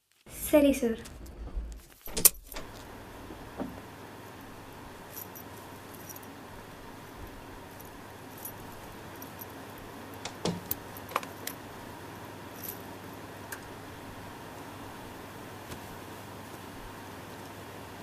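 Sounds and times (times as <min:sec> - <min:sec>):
low background hum: 0:00.0 - 0:18.0
light jingling and clicking: 0:05.1 - 0:06.3.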